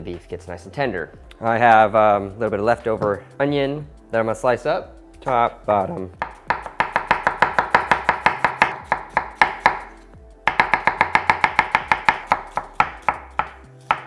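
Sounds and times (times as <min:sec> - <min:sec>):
knife chopping on wooden board: 0:06.2 - 0:09.9, 0:10.5 - 0:14.0.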